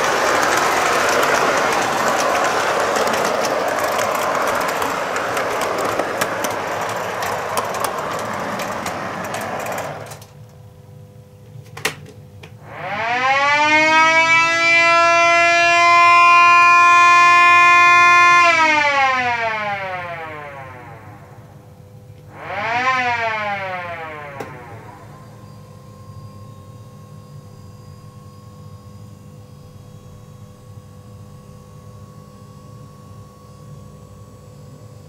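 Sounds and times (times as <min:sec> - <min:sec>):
siren wailing: 0:00.0 - 0:10.2, 0:12.6 - 0:21.6, 0:22.3 - 0:26.5
model train clattering on track: 0:00.0 - 0:10.4.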